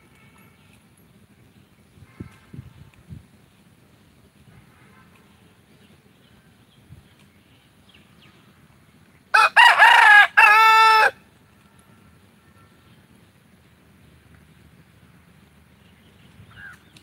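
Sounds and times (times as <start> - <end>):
rooster crowing: 9.3 - 11.2.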